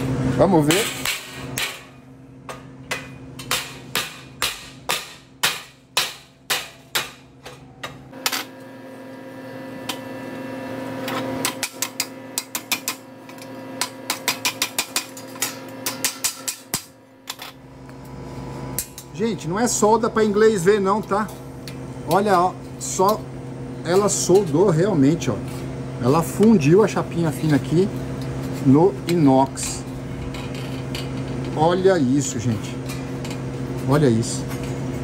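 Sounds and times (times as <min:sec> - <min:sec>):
hammer striking steel sheet: 0:02.9 - 0:07.9.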